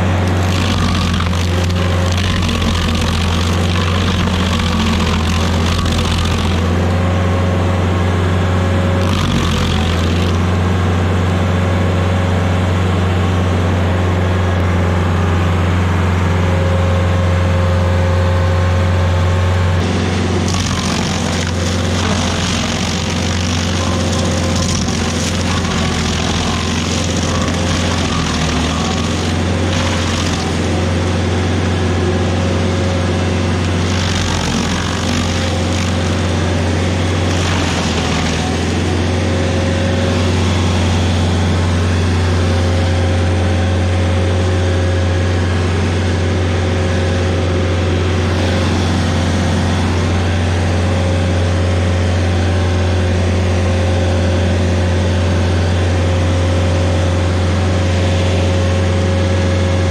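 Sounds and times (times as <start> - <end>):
stump grinder engine running: 0.0 - 59.9
harsh hissing grinding: 0.3 - 6.8, 19.8 - 31.0.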